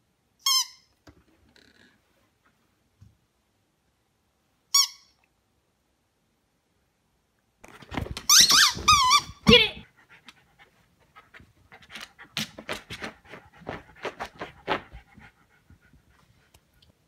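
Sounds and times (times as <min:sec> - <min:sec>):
rubber squeaky toy squawking: 0:00.4 - 0:00.9, 0:04.7 - 0:05.1, 0:08.3 - 0:09.7
dog sniffing: 0:10.0 - 0:16.8
dog pawing at rug: 0:11.2 - 0:15.9.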